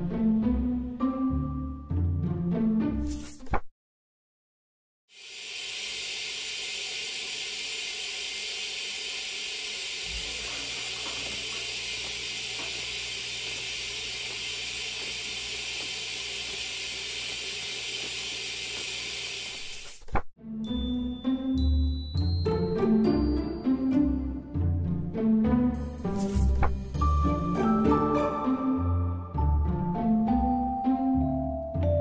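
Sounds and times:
coolant spraying hiss: 0:05.1 - 0:20.0
low machine hum: 0:05.5 - 0:19.5.

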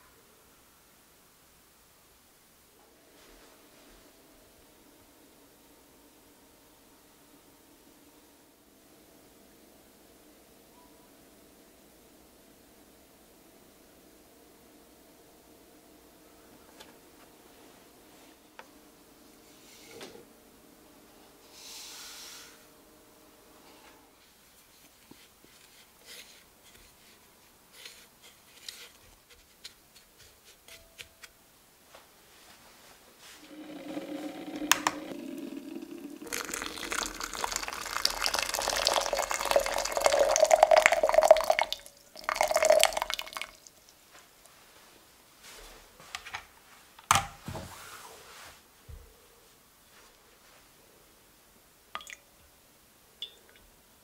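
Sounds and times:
water pouring into glass jug: 0:33.4 - 0:43.8, 0:52.0 - 0:52.2.

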